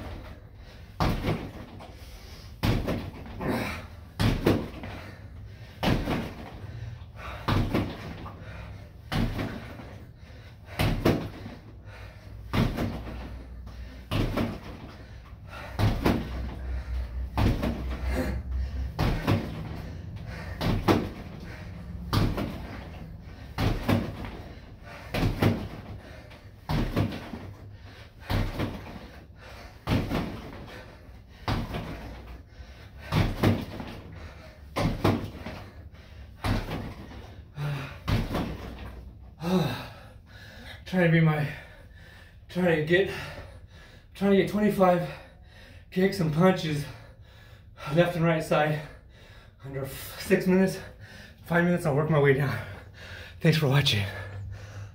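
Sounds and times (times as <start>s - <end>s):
punches and kicks thudding on bag: 1.0s - 1.7s, 2.6s - 4.9s, 5.8s - 6.5s, 7.4s - 8.2s, 9.1s - 9.8s, 10.7s - 11.5s, 12.5s - 13.3s, 14.0s - 14.9s, 15.6s - 16.5s, 17.2s - 18.3s, 18.9s - 19.8s, 20.5s - 21.3s, 22.0s - 24.4s, 25.0s - 26.0s, 26.6s - 27.6s, 28.2s - 29.0s, 29.8s - 30.7s, 31.4s - 32.2s, 33.0s - 34.0s, 34.7s - 35.6s, 36.4s - 38.9s.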